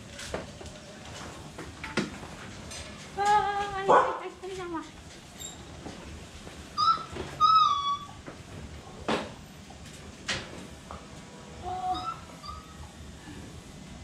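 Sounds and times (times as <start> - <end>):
puppy whining: 6.8 - 8.2, 11.6 - 12.9.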